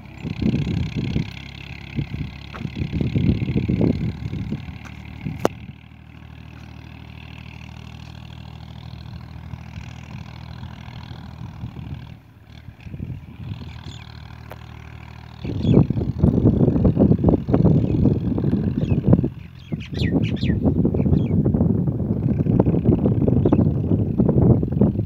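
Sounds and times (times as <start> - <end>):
engine humming: 0.0 - 25.0
wind buffeting microphone: 0.0 - 25.0.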